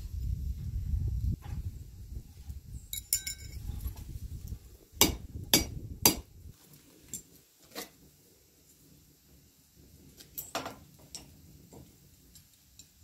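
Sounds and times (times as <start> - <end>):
ringing metal clink: 2.9 - 3.6
hammer striking hot iron: 5.0 - 6.3.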